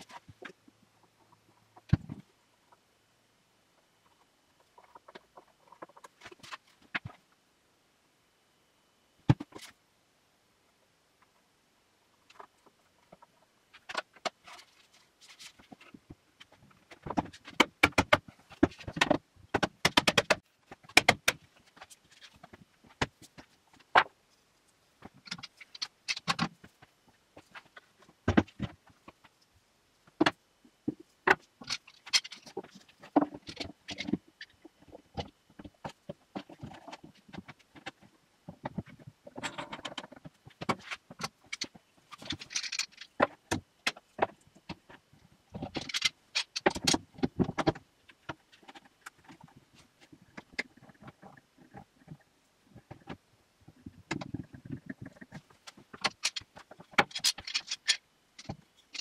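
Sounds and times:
wooden boards knocking and clattering: 16.8 - 24.1, 27.4 - 29.2, 30.2 - 34.2.

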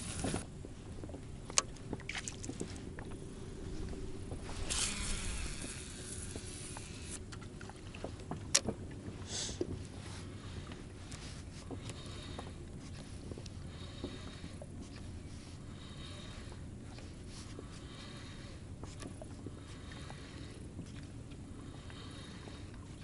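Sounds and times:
fishing reel hissing: 0.0 - 0.4, 4.6 - 7.2.

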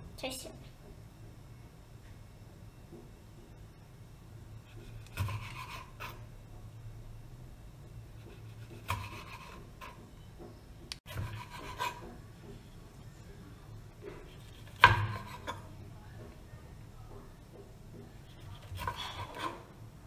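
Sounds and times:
knife slicing pepper on wooden board: 4.7 - 6.2, 8.2 - 10.0, 11.1 - 12.2, 14.1 - 15.6, 18.2 - 19.7.

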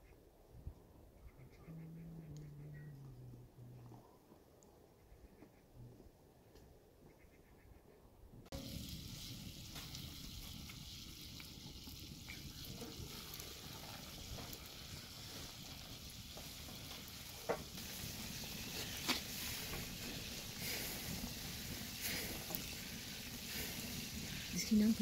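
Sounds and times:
food sizzling in a pan: 8.5 - 25.0.

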